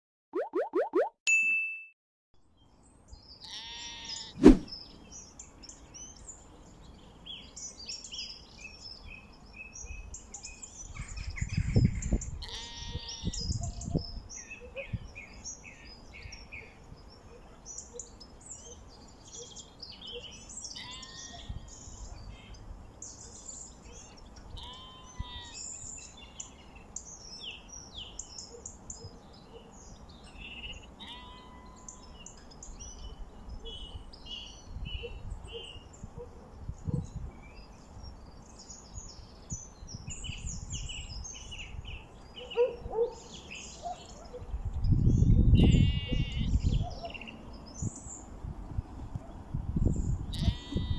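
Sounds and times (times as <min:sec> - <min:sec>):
small birds chirping: 0:02.6 - 0:50.9
sheep bleating: 0:03.4 - 0:04.3, 0:12.4 - 0:13.4, 0:20.8 - 0:21.4, 0:24.6 - 0:25.6, 0:31.0 - 0:32.0, 0:45.6 - 0:46.5, 0:50.3 - 0:50.9.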